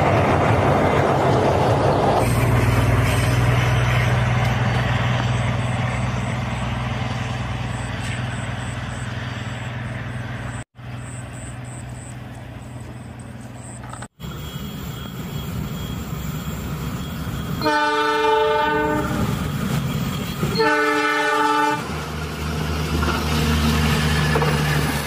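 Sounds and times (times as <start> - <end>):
diesel train engine hum: 0.0 - 25.0
wheel and rail rumble: 0.0 - 25.0.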